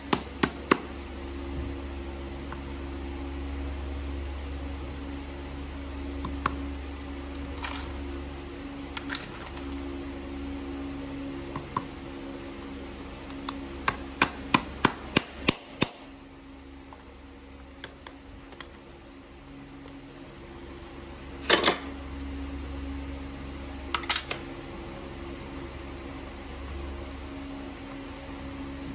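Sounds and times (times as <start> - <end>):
hammer tapping nail: 0.0 - 0.9, 13.4 - 16.0
steady low hum: 0.0 - 28.9.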